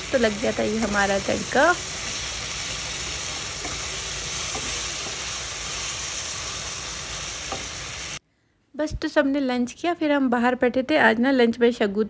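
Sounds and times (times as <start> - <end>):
spatula stirring in a pan: 0.0 - 8.2
spices sizzling in a metal pan: 0.0 - 8.2.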